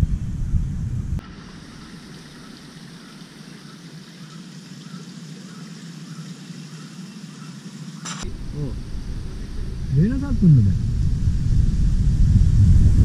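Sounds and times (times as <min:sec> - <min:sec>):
stream trickling over rocks: 0:01.2 - 0:08.0.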